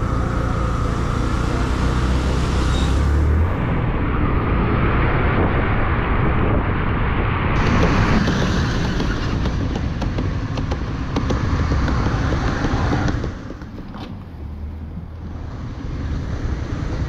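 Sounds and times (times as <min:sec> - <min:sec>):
motorcycle engine: 0:00.0 - 0:04.1
bus and cars passing: 0:00.0 - 0:17.0
wind rumble on microphone: 0:03.0 - 0:17.0.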